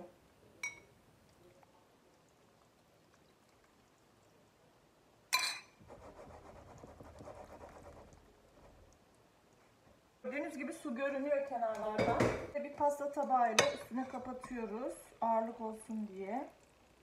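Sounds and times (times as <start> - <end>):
metal spoon clinking on bowl: 0.6 - 0.9, 5.4 - 5.8, 13.6 - 14.7.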